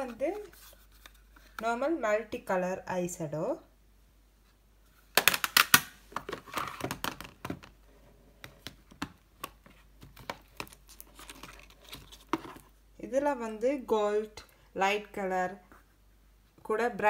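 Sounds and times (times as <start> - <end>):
plastic clicks and crinkling: 8.4 - 12.7.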